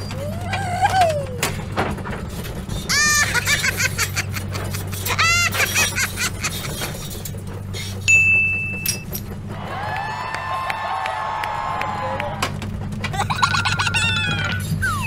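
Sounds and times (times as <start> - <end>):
squeaky cartoon giggles: 2.9 - 8.0, 13.1 - 15.0.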